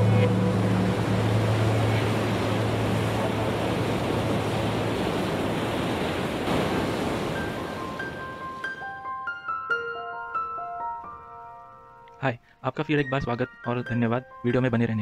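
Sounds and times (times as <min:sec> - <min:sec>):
low steady hum: 0:00.0 - 0:05.7
sea water rushing: 0:00.0 - 0:09.2.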